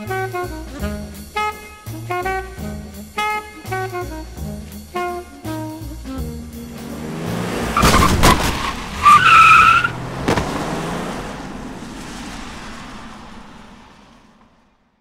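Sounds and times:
car tyres squealing: 6.8s - 14.4s
sharp bang: 7.8s - 8.7s.

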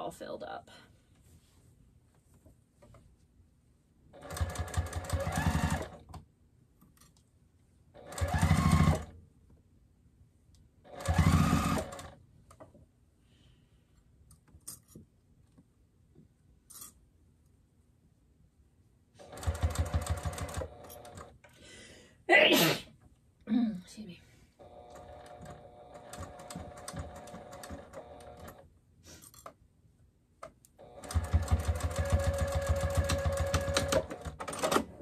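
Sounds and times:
sewing machine stitching: 4.2s - 6.1s, 8.0s - 9.2s, 10.9s - 12.2s, 19.2s - 21.4s, 24.6s - 28.6s, 30.8s - 35.0s.

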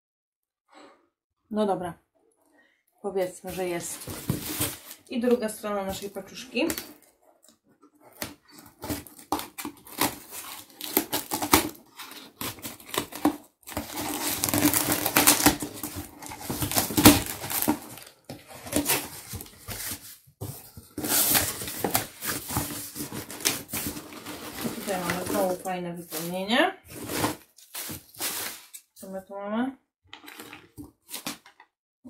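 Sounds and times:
rustling packing filler: 3.5s - 5.2s, 6.8s - 28.9s, 30.1s - 31.6s.

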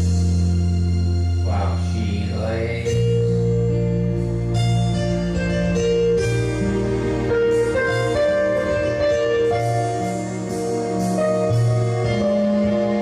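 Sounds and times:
slow keyboard music: 0.0s - 13.0s.

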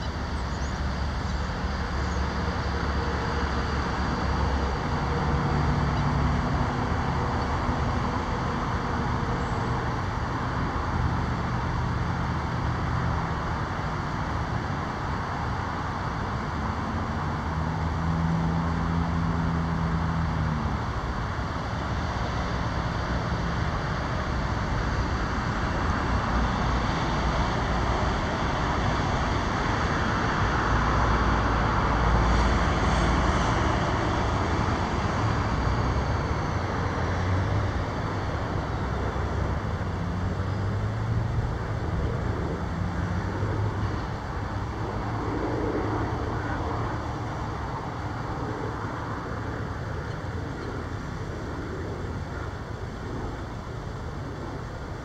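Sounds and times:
loud vehicle passing: 0.0s - 55.0s
low engine hum: 0.0s - 55.0s
road traffic noise: 0.0s - 55.0s.

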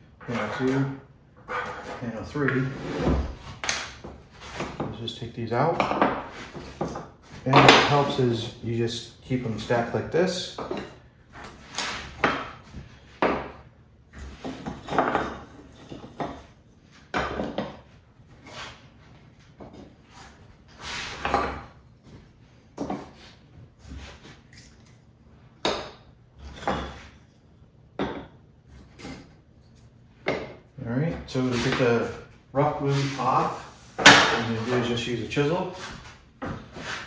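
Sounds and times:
wooden panels knocking and sliding: 5.7s - 8.2s, 10.6s - 13.6s, 14.2s - 17.9s, 30.2s - 35.0s.

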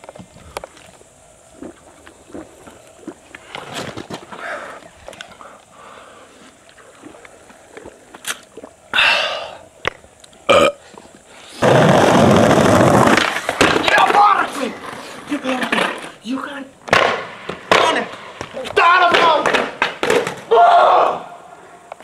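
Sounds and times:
skateboard wheels on asphalt: 3.4s - 6.6s, 11.3s - 20.8s
man belching: 10.4s - 10.8s.

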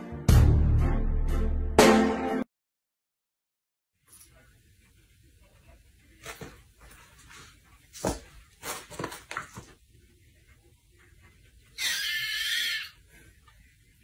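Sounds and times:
soft knocks and scuffles: 6.2s - 9.8s.

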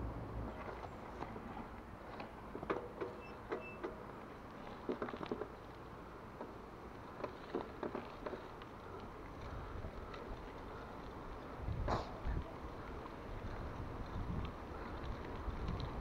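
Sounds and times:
bike tyres rumbling on road: 0.0s - 16.0s
bike clicks and rattles: 0.5s - 16.0s
wind noise on microphone: 11.5s - 16.0s.

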